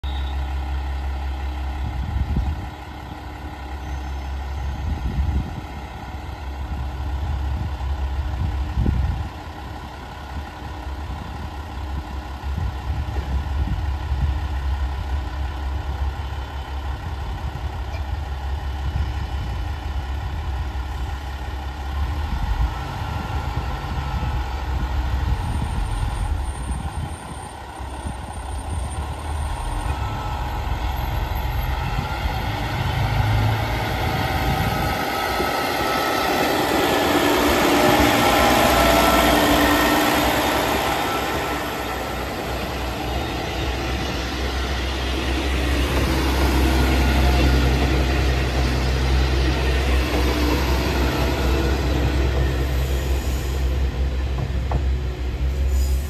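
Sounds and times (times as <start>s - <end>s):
diesel railcar engines idling: 0.0s - 56.0s.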